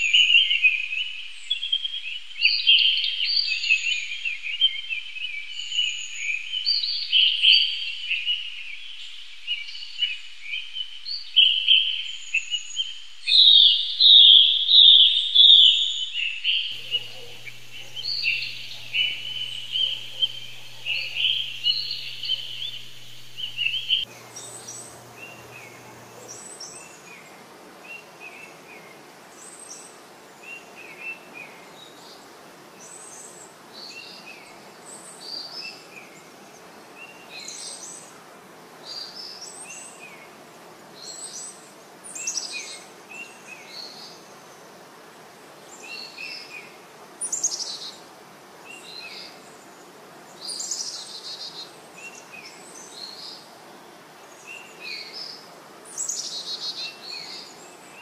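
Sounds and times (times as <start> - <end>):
forest ambience hiss: 16.1 - 58.0
birds chirping and calling: 16.8 - 26.4.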